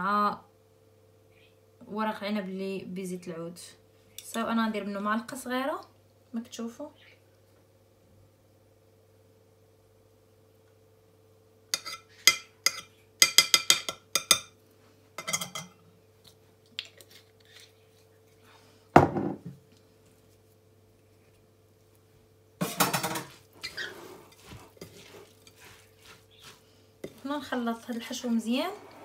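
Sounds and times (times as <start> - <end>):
spatula stirring and scraping: 11.7 - 14.4, 22.6 - 29.0.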